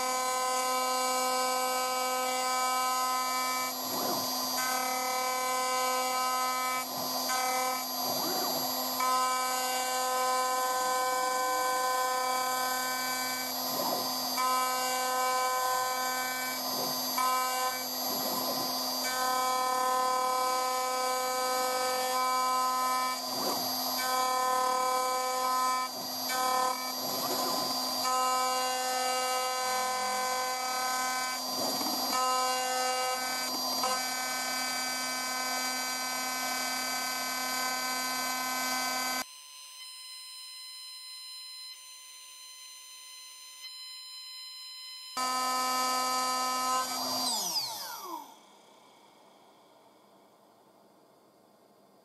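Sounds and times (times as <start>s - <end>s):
cnc router spindle whine: 0.0s - 50.2s
harsh cutting noise: 1.7s - 39.2s.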